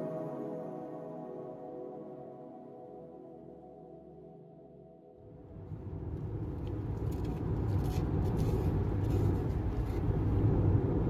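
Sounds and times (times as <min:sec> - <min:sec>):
vehicle engine rumble: 0:05.4 - 0:11.0.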